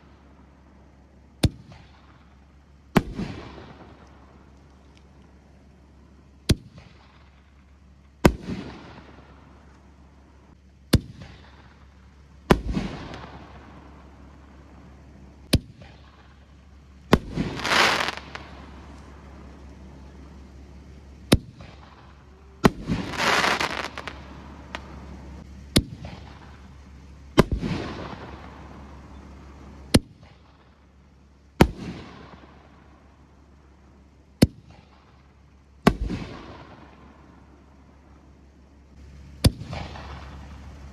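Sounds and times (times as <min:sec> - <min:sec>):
noisy firework bursts: 0:00.0 - 0:40.9
firework shells banging: 0:10.8 - 0:30.8.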